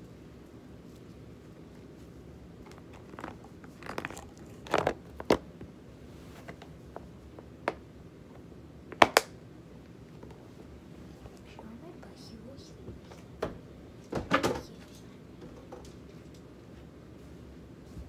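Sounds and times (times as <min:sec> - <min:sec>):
hands handling objects: 0:00.8 - 0:09.3.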